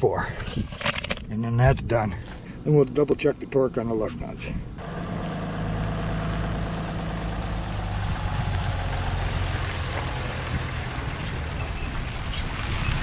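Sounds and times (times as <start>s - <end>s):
vehicle engine humming: 4.2s - 13.0s.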